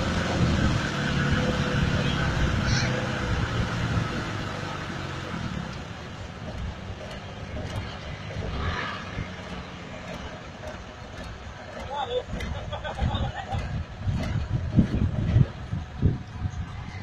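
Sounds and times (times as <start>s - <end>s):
car engine running at low revs: 0.0s - 17.0s.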